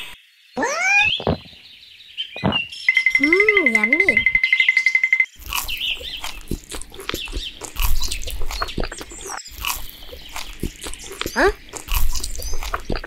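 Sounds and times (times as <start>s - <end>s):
animal-like squeaks and grunts: 0.6s - 1.6s, 11.0s - 11.6s.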